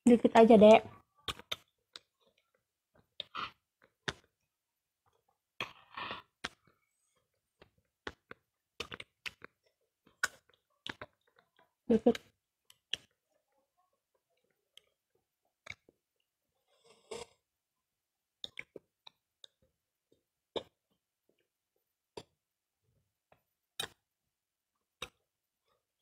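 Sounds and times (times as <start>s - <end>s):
wet lip smacks and clicks: 10.2s - 11.4s.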